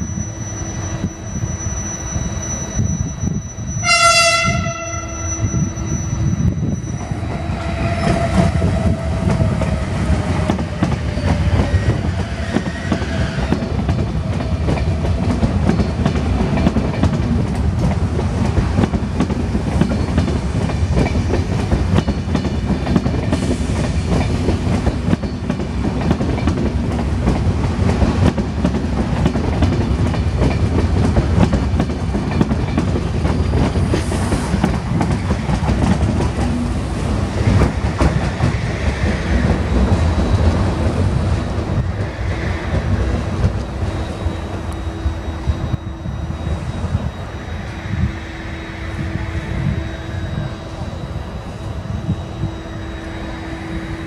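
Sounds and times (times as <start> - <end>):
train rumble: 0.0 - 54.0
train wheels clattering over rail joints: 7.9 - 36.7.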